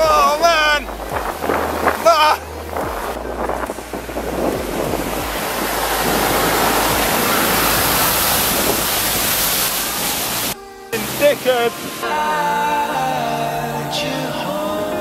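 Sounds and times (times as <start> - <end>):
wind on microphone: 0.0 - 12.1
wheels spraying through floodwater: 0.0 - 15.0.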